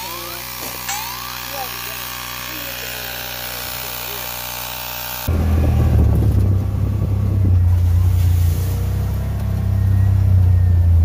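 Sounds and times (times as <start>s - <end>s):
electric tyre inflator humming: 0.0s - 6.0s
vehicle engine rumbling: 5.1s - 11.0s.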